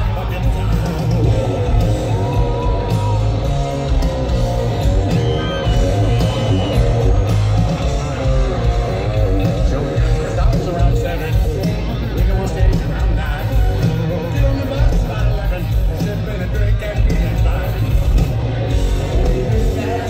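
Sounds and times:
hard rock band playing live: 0.0s - 20.0s
lead guitar holding long notes: 0.0s - 20.0s.

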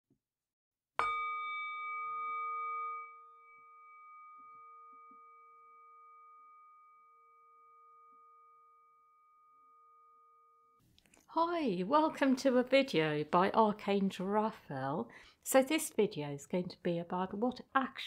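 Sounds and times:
singing bowl ringing: 1.0s - 10.8s.

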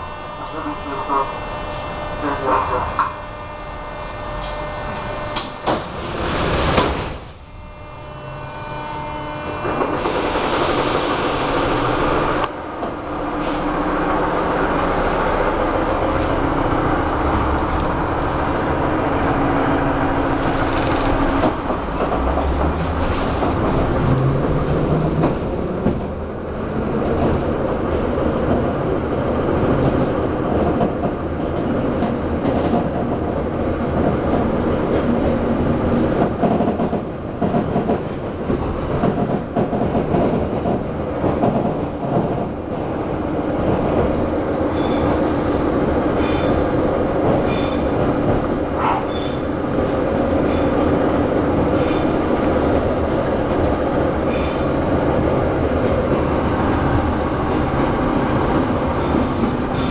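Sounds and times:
train doors banging shut: 5.3s - 7.4s, 43.6s - 59.9s
loud air hiss: 10.0s - 12.3s
wheels clattering on rails: 20.0s - 28.8s, 29.7s - 59.9s.

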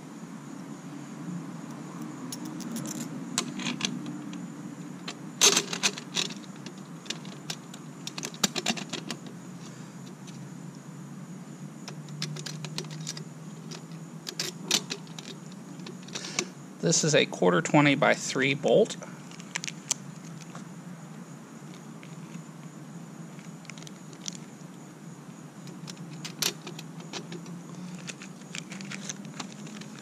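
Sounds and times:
small metal hardware clinking: 2.3s - 3.9s.

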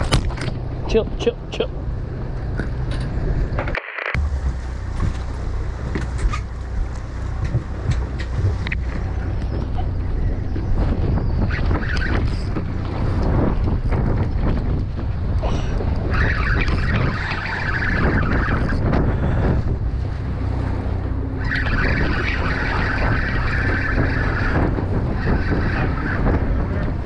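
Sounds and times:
wind buffeting microphone: 0.0s - 27.0s
fishing reel gears whirring: 21.4s - 26.7s.

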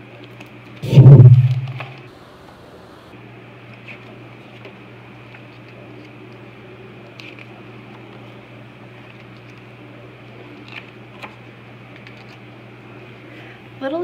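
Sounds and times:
low room tone hum: 0.8s - 14.0s
paper pages rustling: 12.0s - 12.4s.

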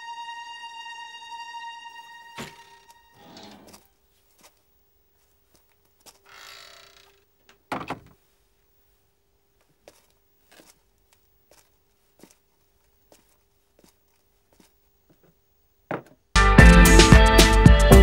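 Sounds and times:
faint steady hum: 0.0s - 16.4s.

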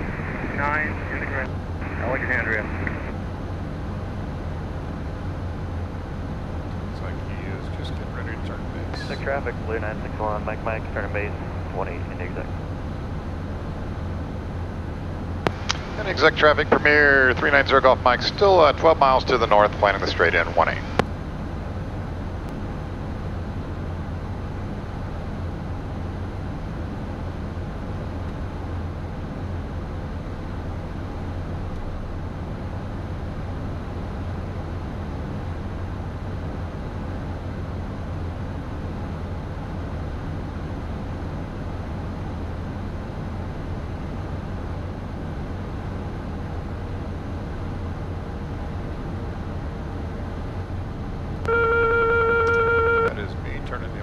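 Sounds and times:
air rushing past jet cockpit: 0.0s - 3.1s
faint steady whine: 0.0s - 54.0s
jet engines humming: 0.0s - 54.0s
electronic tone: 51.4s - 53.5s.

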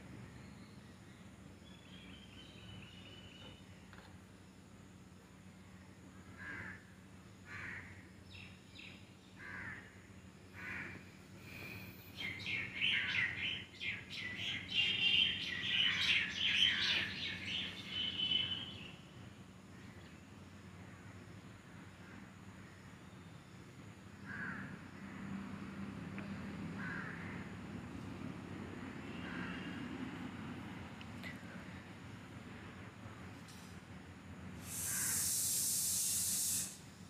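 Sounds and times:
birds calling: 10.6s - 19.1s
high bird chirping: 12.1s - 19.0s.

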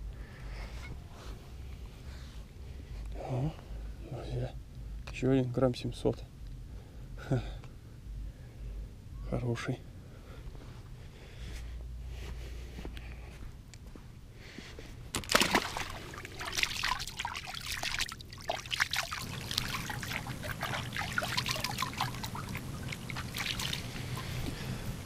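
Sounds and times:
water splashing and trickling: 15.1s - 25.0s.

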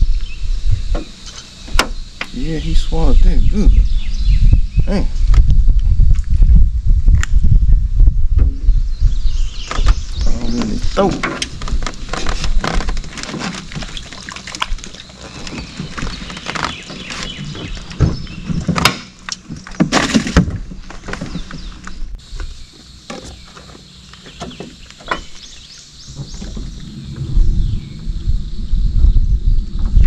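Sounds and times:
clicks and knocks in aluminum boat: 9.6s - 22.0s, 23.1s - 26.8s.

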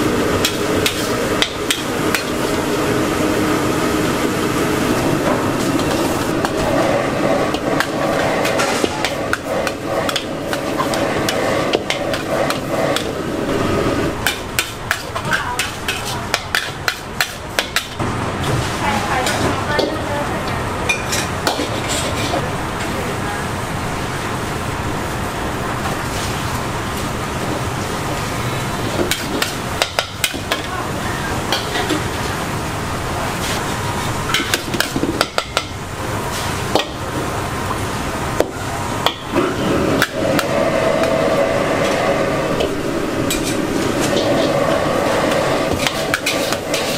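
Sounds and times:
gas burner rushing: 0.0s - 46.9s
metal spatula scraping wok: 45.7s - 46.9s.

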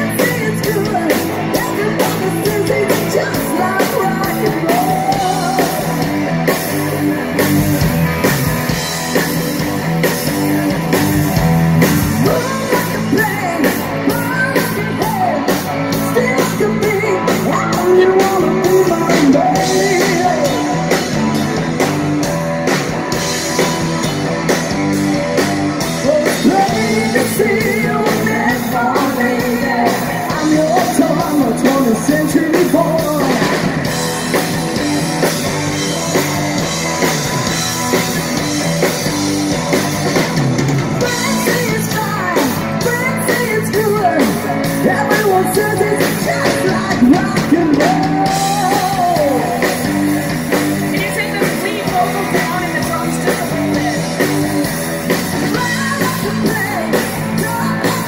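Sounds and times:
bass guitar: 0.0s - 58.0s
distorted electric guitars: 0.0s - 58.0s
drum kit: 0.0s - 58.0s
women singing: 12.2s - 20.6s, 26.1s - 33.5s, 41.0s - 49.8s, 50.9s - 54.1s, 55.4s - 58.0s.

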